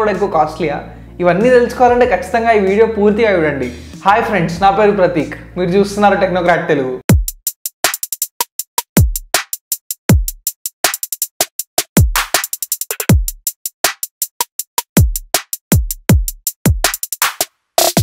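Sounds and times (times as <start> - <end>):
booming kick drum: 7.1 - 7.4, 9.0 - 9.3, 10.1 - 10.4, 13.1 - 13.4.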